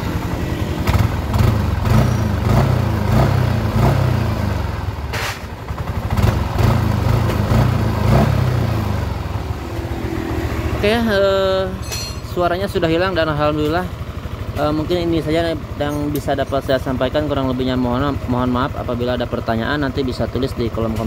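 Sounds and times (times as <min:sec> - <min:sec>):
scooter engine revving: 0:00.0 - 0:11.8.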